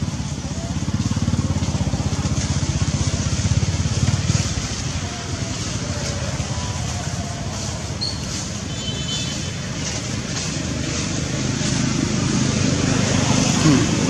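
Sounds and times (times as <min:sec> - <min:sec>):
engine running with low pulse: 0:00.0 - 0:08.7.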